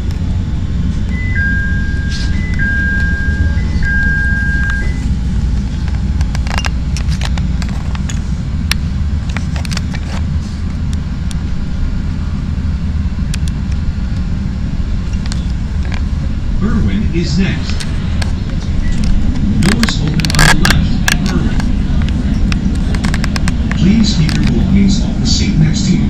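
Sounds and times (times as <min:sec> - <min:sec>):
train car rumble: 0:00.0 - 0:26.0
sharp clicks and rattles: 0:05.7 - 0:10.3, 0:17.6 - 0:24.8.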